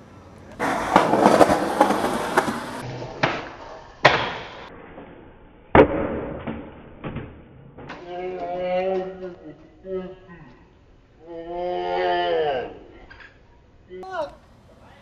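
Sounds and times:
skateboard wheels rolling on concrete: 0.0 - 5.1
skateboard grinding on metal rail: 0.6 - 3.8
skateboard cracks: 0.6 - 4.7
skateboard slamming on concrete: 0.6 - 4.7.

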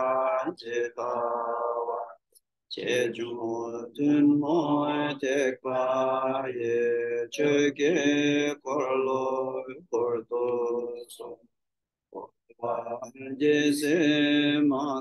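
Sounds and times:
man chanting: 0.0 - 11.4, 12.2 - 15.0.

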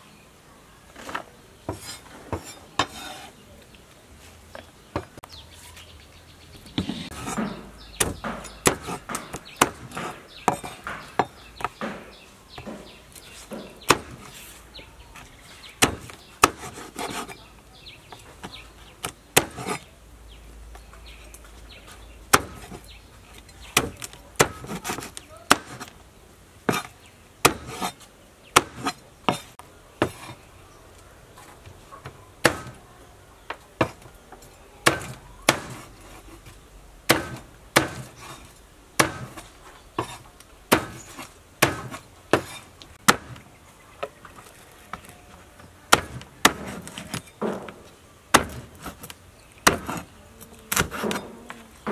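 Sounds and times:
cleaver chopping on wooden board: 6.8 - 14.4, 15.8 - 17.4, 18.4 - 19.8, 22.3 - 22.8, 23.8 - 25.9, 26.7 - 28.0, 28.6 - 30.4, 32.4 - 32.8, 33.8 - 34.1, 34.8 - 35.9, 37.1 - 38.4, 39.0 - 43.4, 45.9 - 50.1, 50.7 - 51.9.

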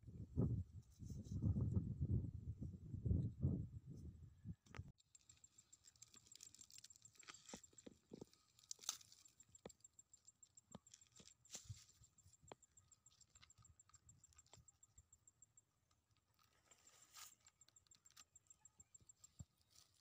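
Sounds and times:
pineapple rind crackling: 5.0 - 11.8.

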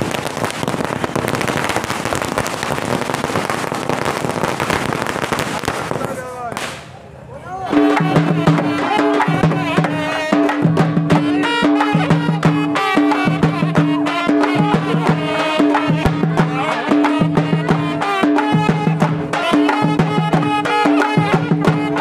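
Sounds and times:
folk music with fast drumming: 7.7 - 22.0.

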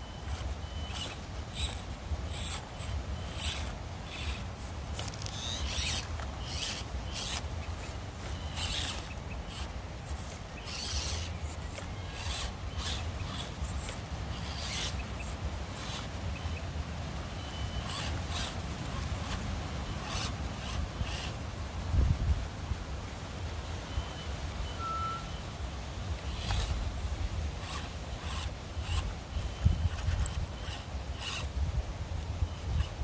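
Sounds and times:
small motor and gear whine: 0.0 - 33.0.

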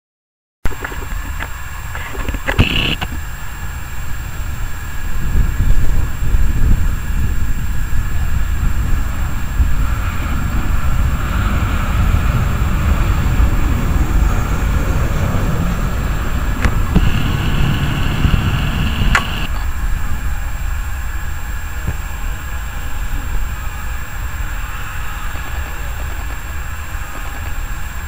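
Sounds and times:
jet engine noise with rumble: 0.7 - 28.0
thin high steady tone: 0.7 - 28.0
sharp clicks: 0.8 - 3.2, 16.6 - 19.5.

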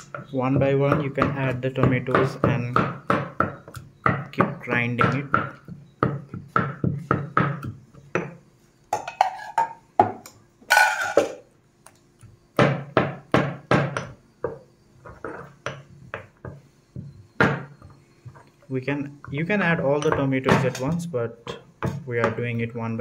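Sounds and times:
stone pestle pounding in mortar: 0.0 - 8.4, 12.6 - 14.6, 15.6 - 17.9, 19.3 - 22.4.

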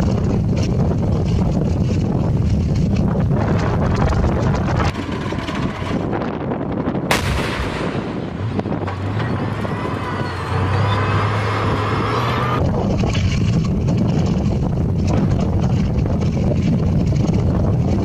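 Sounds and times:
steady low hum: 0.0 - 12.9
tank gun blast echoing: 7.0 - 9.0.

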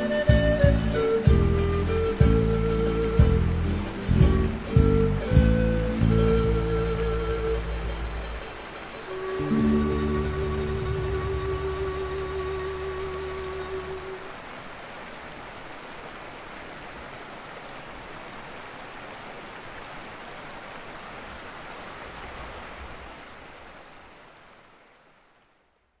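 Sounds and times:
background music: 0.0 - 14.2
flowing water rushing: 0.0 - 25.8.

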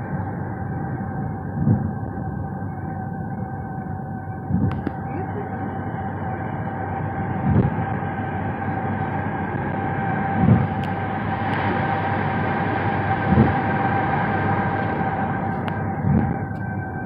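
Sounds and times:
road and wind noise in car: 0.0 - 17.0
short low thumps: 1.6 - 2.2, 7.4 - 7.8.

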